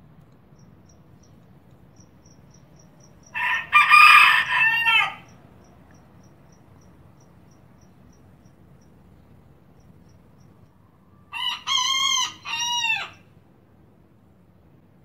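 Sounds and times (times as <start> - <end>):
faint cricket chirps: 0.0 - 11.4
rooster crowing: 3.2 - 5.4, 11.1 - 13.3.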